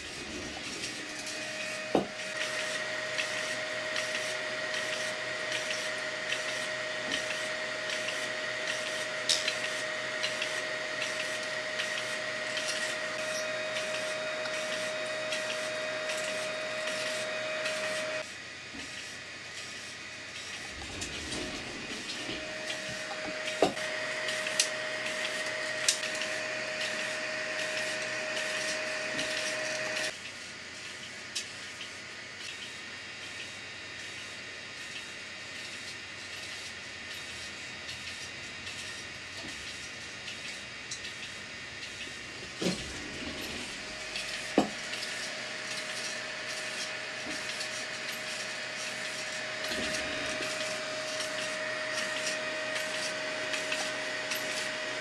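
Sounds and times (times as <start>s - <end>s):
extruder stepper motor whining: 0.0s - 18.3s, 20.1s - 30.2s, 41.8s - 55.0s.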